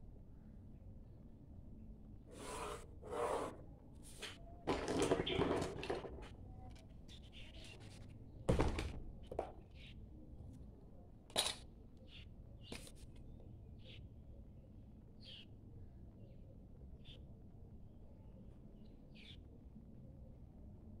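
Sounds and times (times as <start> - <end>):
pencil strokes along set square: 2.3 - 3.6
set square sliding over paper: 2.3 - 4.4.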